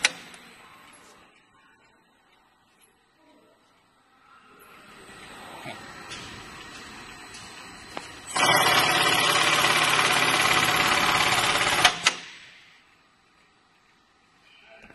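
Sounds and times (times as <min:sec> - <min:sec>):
sharp machine clicks: 0:08.3 - 0:12.4.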